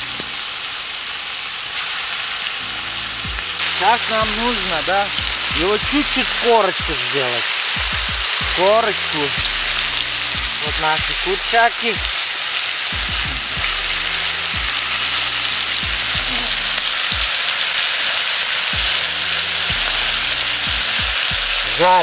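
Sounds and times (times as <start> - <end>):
chicken sizzling in oil: 0.0 - 22.0.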